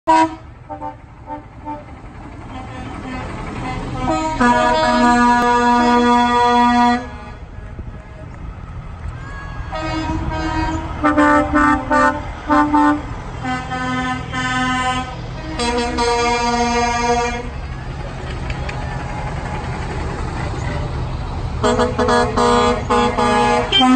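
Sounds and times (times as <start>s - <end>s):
truck air horns: 0.1s - 8.3s, 9.5s - 18.0s, 21.5s - 23.9s
diesel trucks rumbling past: 0.1s - 23.9s.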